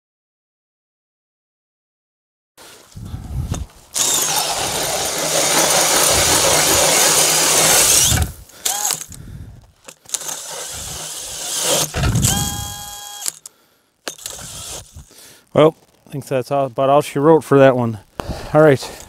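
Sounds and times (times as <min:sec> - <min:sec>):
cordless drill spinning ice auger: 0:04.0 - 0:09.2, 0:09.9 - 0:13.4, 0:14.1 - 0:15.1
drill motor whine: 0:04.0 - 0:09.2, 0:10.1 - 0:13.4, 0:14.1 - 0:15.1.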